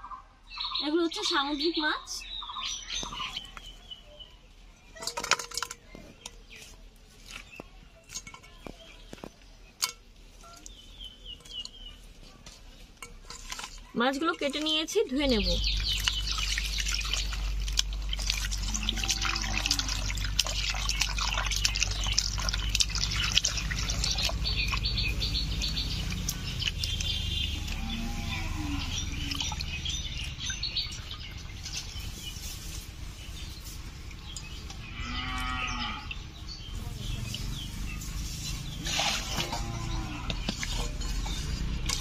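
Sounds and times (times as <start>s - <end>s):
clinks: 5.0s - 6.4s
water splashing and sloshing: 5.0s - 42.0s.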